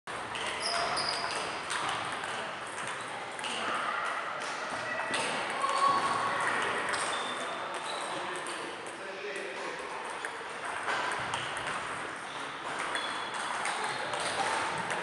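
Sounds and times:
table tennis balls clicking: 0.1s - 4.2s, 4.9s - 9.0s, 9.8s - 15.0s.

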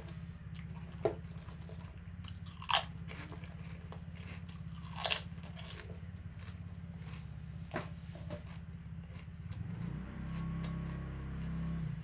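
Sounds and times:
prawn cracker crunching: 0.6s - 7.3s.

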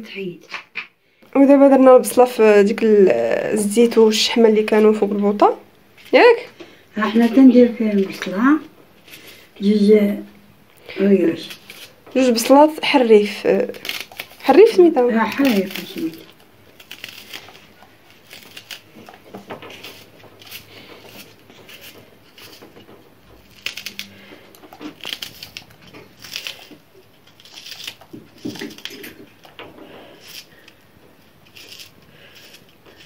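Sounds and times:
knife slicing onion: 11.1s - 33.0s.

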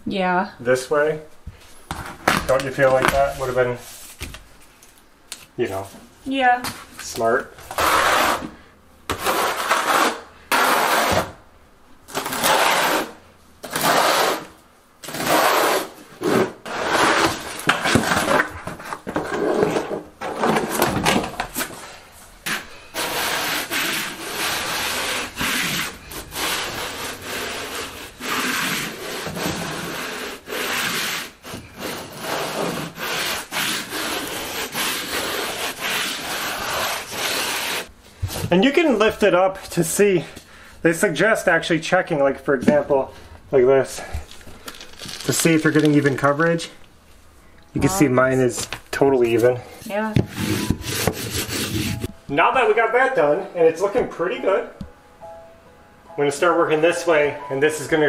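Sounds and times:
trowel scraping mortar: 7.7s - 8.5s, 9.1s - 11.4s, 12.1s - 20.0s, 22.5s - 37.9s.

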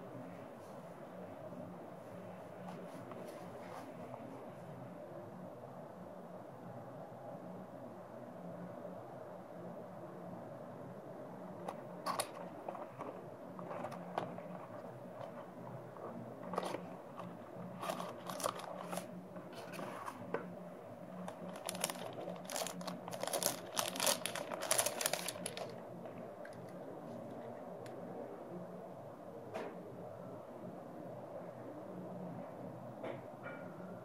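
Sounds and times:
plastic bag crinkling: 11.6s - 20.3s, 21.1s - 25.8s
cardboard box being opened: 12.1s - 20.4s, 21.2s - 25.7s.

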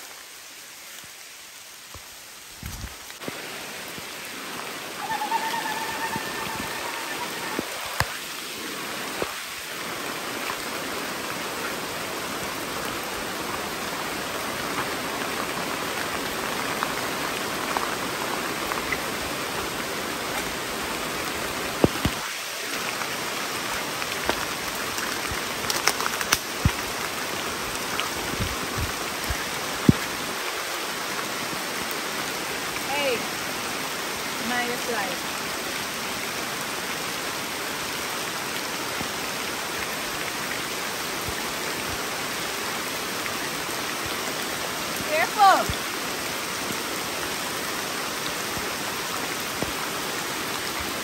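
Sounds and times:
rain on foliage: 0.0s - 51.0s
footsteps through wet undergrowth: 23.2s - 30.1s.

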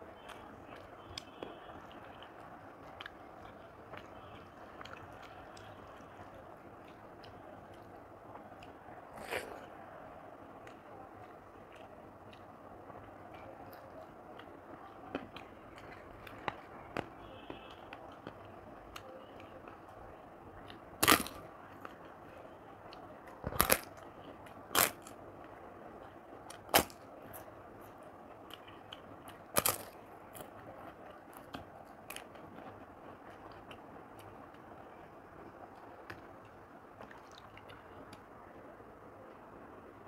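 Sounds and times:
faint chewing clicks: 0.2s - 10.0s, 10.6s - 20.8s, 27.3s - 38.6s
crunching of fried snack: 8.6s - 9.7s, 20.6s - 22.0s, 23.4s - 25.2s, 26.5s - 27.0s, 28.4s - 34.5s.

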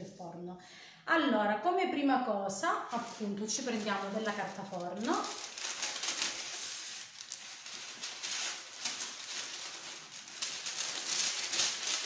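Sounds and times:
baking paper rustling and crinkling: 2.8s - 12.0s.

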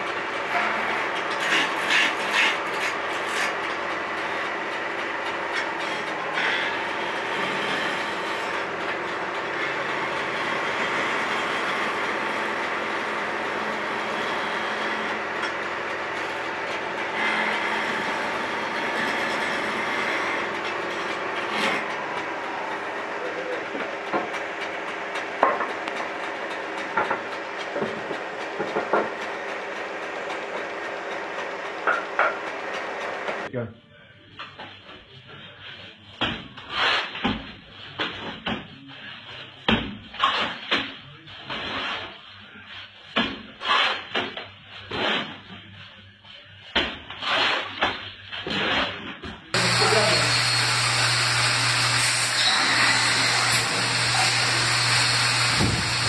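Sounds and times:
wood lathe whirring: 0.0s - 33.5s, 49.5s - 56.0s
chisel scraping wood: 0.5s - 4.2s, 5.5s - 23.1s, 49.6s - 56.0s.

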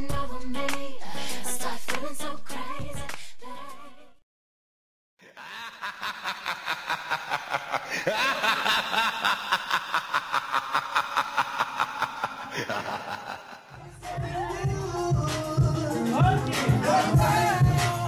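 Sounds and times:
dance song: 11.6s - 18.0s
music with voices and beat: 13.8s - 18.0s.

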